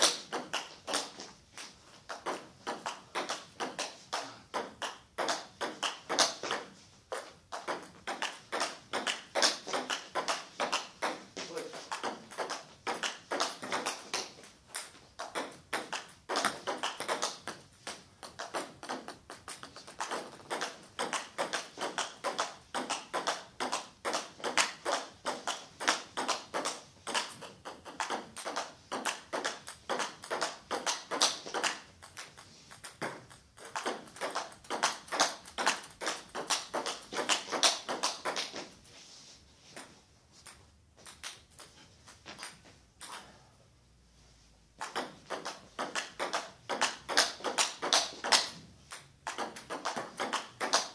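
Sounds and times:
table tennis ball clicking: 0:11.9 - 0:38.5, 0:44.8 - 0:50.9.

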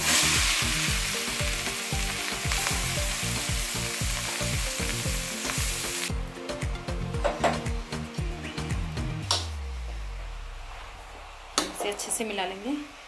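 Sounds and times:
carrots sizzling in hot fat: 0:00.0 - 0:06.1
background music with steady beat: 0:00.0 - 0:12.8.

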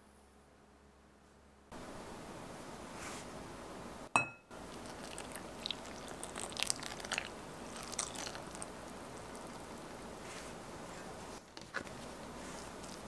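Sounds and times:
soft crackling of soaking flour: 0:02.5 - 0:03.5, 0:04.1 - 0:13.0
ringing clink: 0:04.2 - 0:04.5
liquid pouring: 0:04.6 - 0:10.0.

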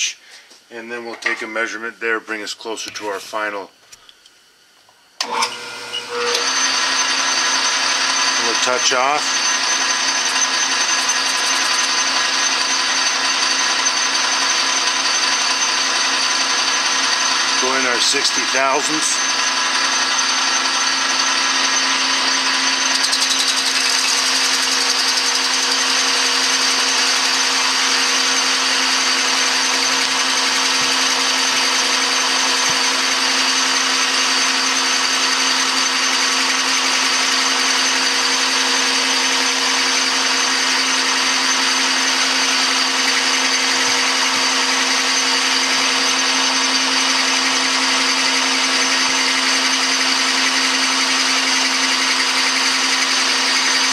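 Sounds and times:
metal lathe whine: 0:05.2 - 0:53.9.

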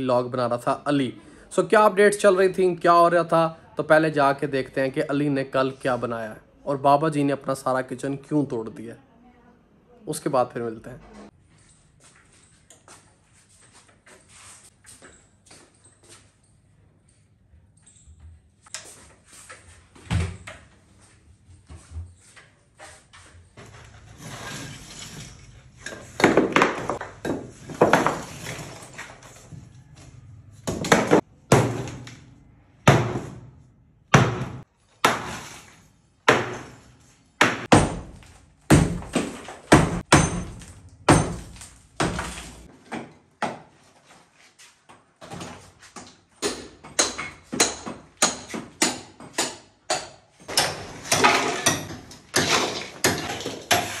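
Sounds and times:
demolition knocks and thuds: 0:25.4 - 0:29.2, 0:30.6 - 0:32.1, 0:37.4 - 0:42.7, 0:50.5 - 0:54.0.

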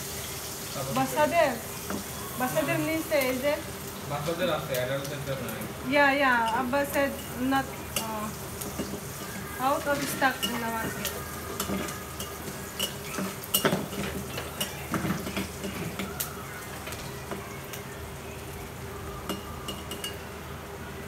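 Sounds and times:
food sizzling: 0:00.0 - 0:21.0
metal utensil scraping a pan: 0:06.4 - 0:16.1.

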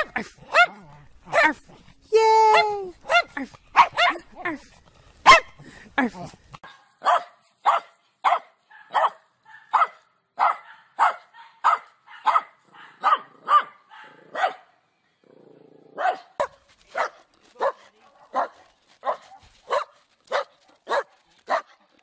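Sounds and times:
dog barking: 0:00.0 - 0:01.6, 0:02.5 - 0:04.3, 0:05.2 - 0:05.6, 0:06.6 - 0:14.8, 0:16.0 - 0:21.8.

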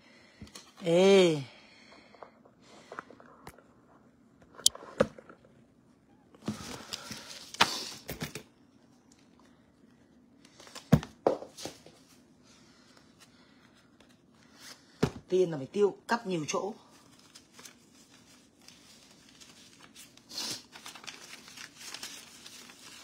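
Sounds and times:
rustling: 0:16.9 - 0:23.0.

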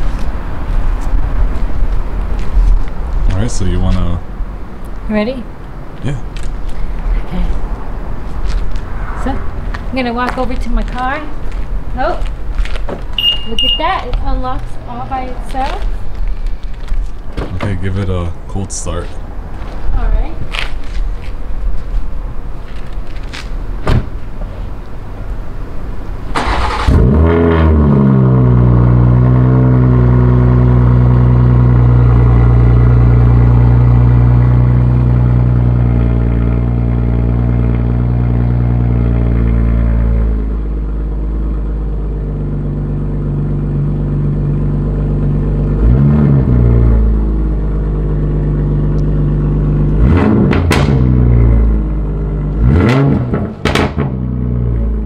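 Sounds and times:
engine revving: 0:26.3 - 0:40.6, 0:41.5 - 0:55.0.

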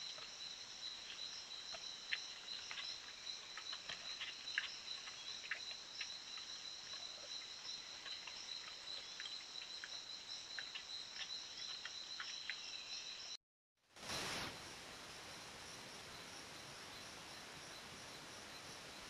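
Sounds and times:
faint insect ticks: 0:00.0 - 0:13.4
insects trilling: 0:00.0 - 0:13.4.

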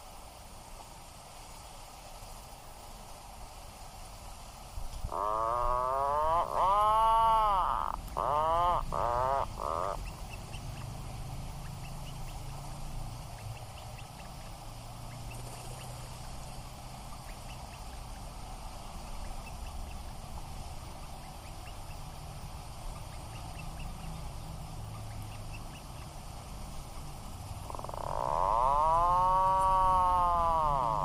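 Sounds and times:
steady background hiss: 0:00.0 - 0:31.0
puffins growling calls: 0:05.1 - 0:10.7, 0:27.6 - 0:31.0.

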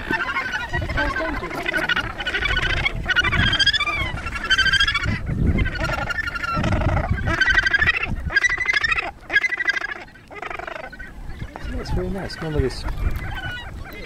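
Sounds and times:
gannets calling harshly: 0:00.0 - 0:14.0.

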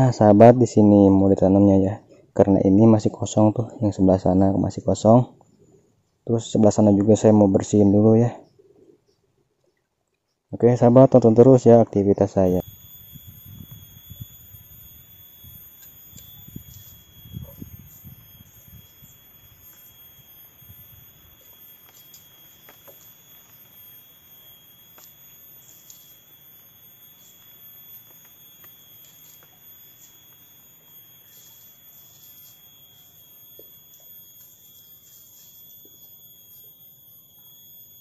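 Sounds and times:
steady high-pitched whine: 0:10.6 - 0:38.0.

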